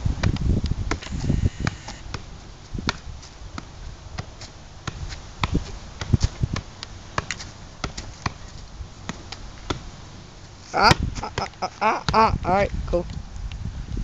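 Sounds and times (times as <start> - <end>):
ball touches on foot and thigh: 0.2 - 9.9.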